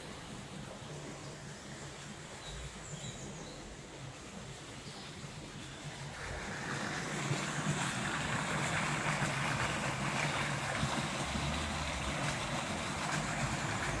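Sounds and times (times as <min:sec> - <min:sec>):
stream rushing over rocks: 0:03.7 - 0:14.0.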